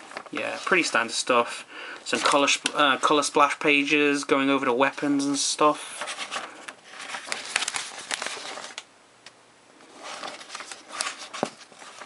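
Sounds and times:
paper pages rustling: 0:00.0 - 0:01.2, 0:02.0 - 0:03.2, 0:05.0 - 0:08.8, 0:09.8 - 0:12.0
sharp page flicks: 0:07.0 - 0:08.8.

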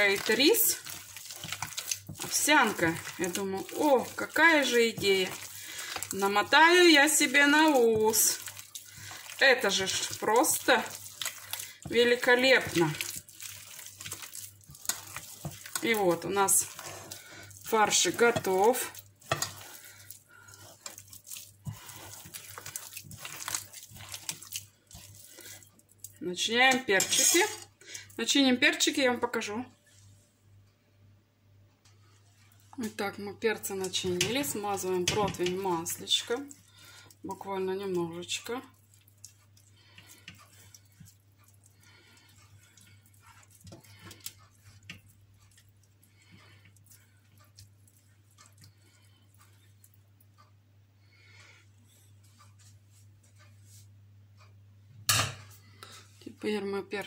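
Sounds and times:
pastry brush swishing on metal tray: 0:00.0 - 0:25.7
hand squishing minced meat: 0:00.0 - 0:28.2, 0:32.2 - 0:50.2.

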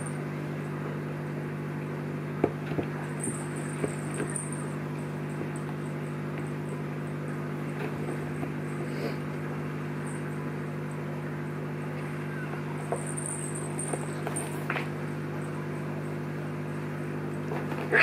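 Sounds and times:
low electrical hum: 0:00.0 - 0:18.0
kittens knocking and thumping: 0:02.4 - 0:04.7.

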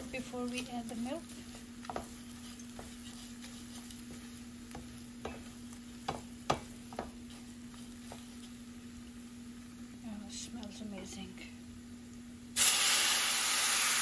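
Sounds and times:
steady low hum: 0:00.0 - 0:12.6
light sizzle in a pan: 0:00.0 - 0:14.0.

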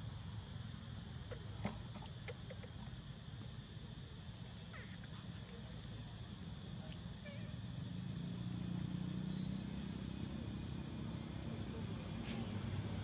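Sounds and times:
vehicle engine humming: 0:05.2 - 0:13.0.

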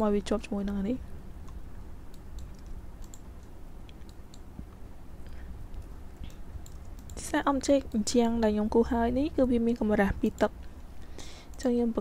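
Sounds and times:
low steady hum: 0:00.0 - 0:12.0
mouse and keyboard clicks: 0:01.4 - 0:04.5, 0:05.7 - 0:07.2.

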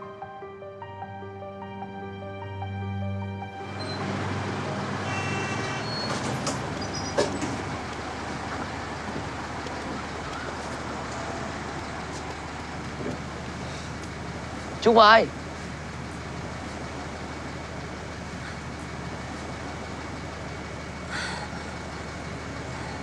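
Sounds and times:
city street traffic: 0:03.4 - 0:23.0
brief high tone: 0:03.6 - 0:04.2, 0:05.0 - 0:06.2.

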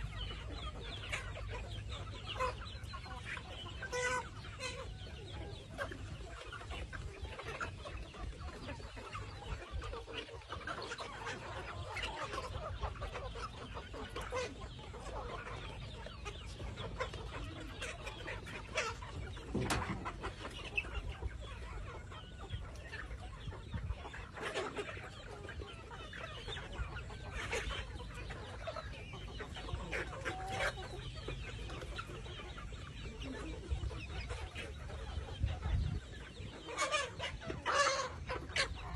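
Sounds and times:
chickens clucking and calling: 0:00.0 - 0:38.9.

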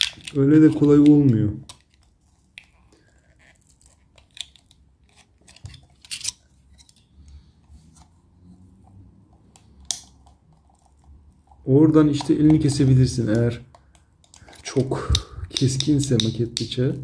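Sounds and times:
knife scraping plastic mouse: 0:03.2 - 0:07.0.

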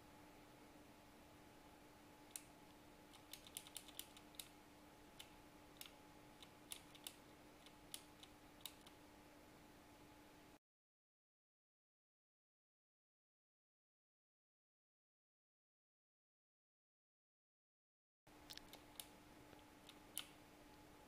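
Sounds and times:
faint steady hum: 0:00.0 - 0:10.6, 0:18.3 - 0:21.0
keyboard keys clicking: 0:03.1 - 0:04.5, 0:05.2 - 0:09.0.

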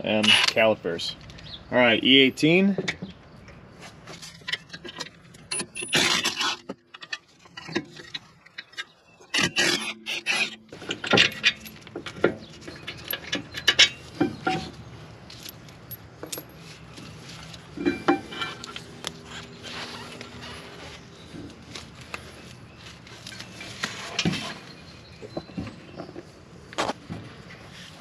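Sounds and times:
metal clinks and rattles: 0:10.8 - 0:16.7, 0:17.7 - 0:20.4.

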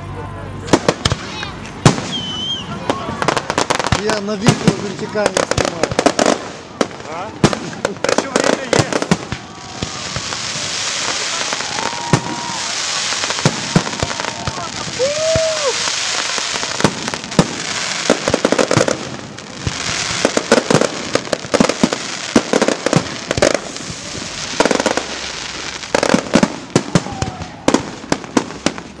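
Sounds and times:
steady rush of noise: 0:00.0 - 0:29.0
fireworks bangs: 0:00.6 - 0:29.0.

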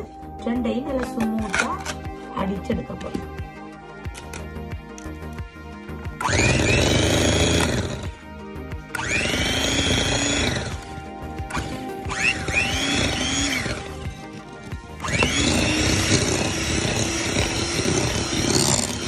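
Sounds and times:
background music: 0:00.0 - 0:19.0
electric hand mixer running: 0:06.1 - 0:19.0.

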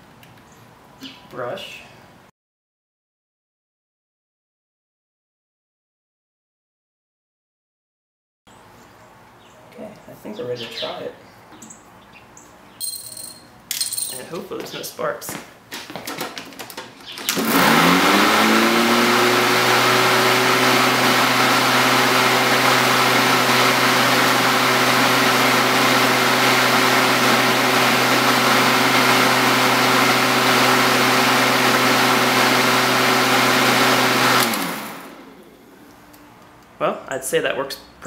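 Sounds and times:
electric lawn mower motor whine: 0:17.2 - 0:36.6.

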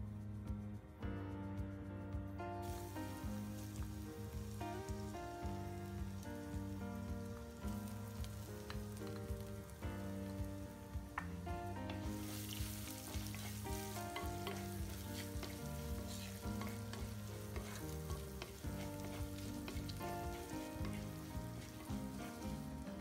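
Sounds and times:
aromatics sizzling in hot oil: 0:02.6 - 0:23.0
wooden spatula scraping pot: 0:11.9 - 0:23.0.

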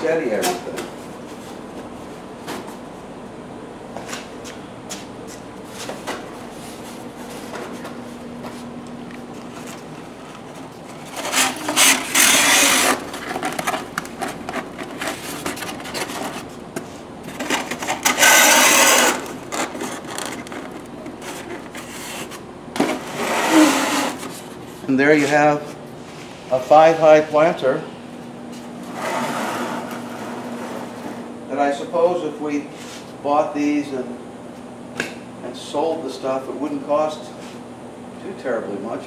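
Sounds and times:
foam containers scraping: 0:10.5 - 0:25.6, 0:28.8 - 0:31.2.

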